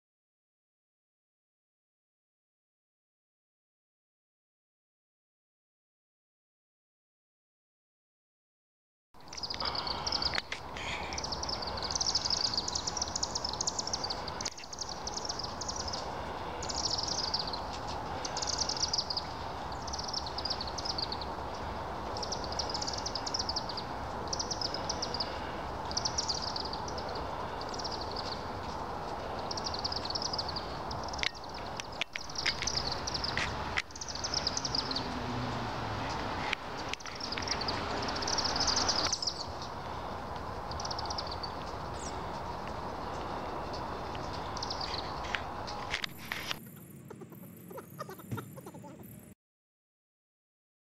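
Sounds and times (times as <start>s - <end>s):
swifts chittering: 9.2s - 49.3s.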